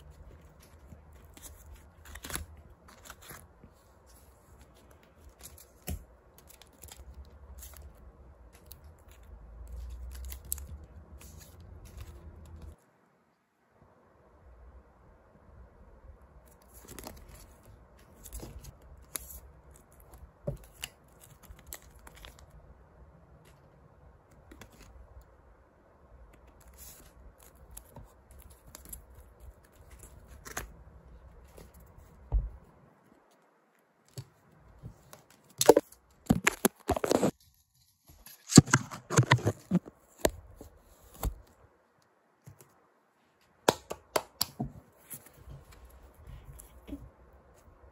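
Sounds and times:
plastic sleeves and paper rustling: 0:00.0 - 0:12.8, 0:16.4 - 0:22.6, 0:23.4 - 0:25.4, 0:26.2 - 0:41.6.

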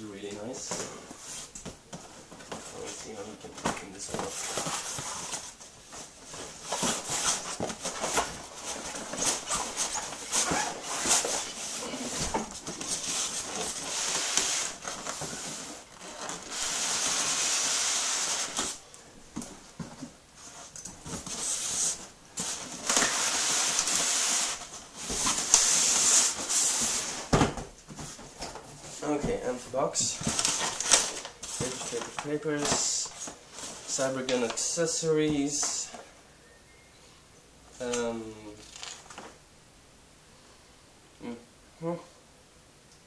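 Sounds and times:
packaging knocks and rustles: 0:22.4 - 0:34.6.

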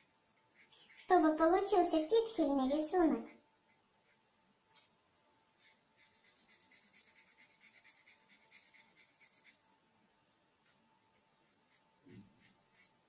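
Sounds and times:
marker scratching on paper: 0:05.6 - 0:09.7, 0:11.4 - 0:13.0.

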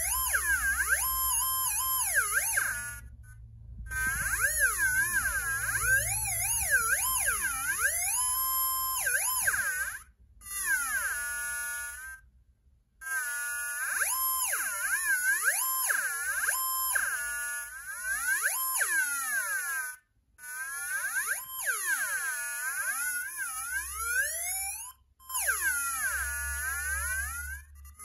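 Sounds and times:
theremin tone swooping in pitch: 0:03.9 - 0:09.9.

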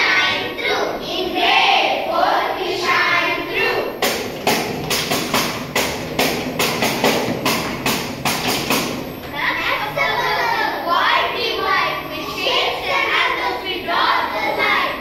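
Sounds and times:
children's voices: 0:00.0 - 0:04.1, 0:09.2 - 0:15.0.

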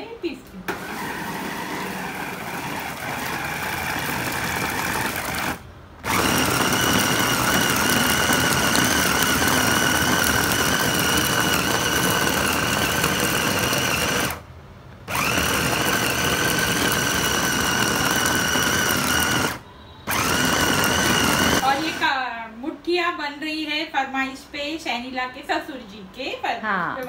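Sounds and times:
electric chopper motor whining: 0:00.7 - 0:14.4, 0:15.1 - 0:22.0.

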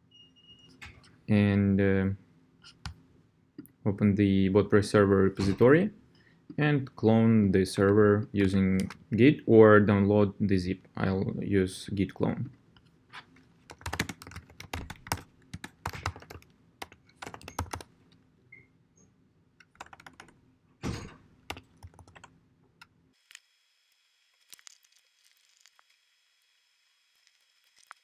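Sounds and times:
typing on a keyboard: 0:13.7 - 0:17.9, 0:19.6 - 0:20.3, 0:21.5 - 0:22.3.

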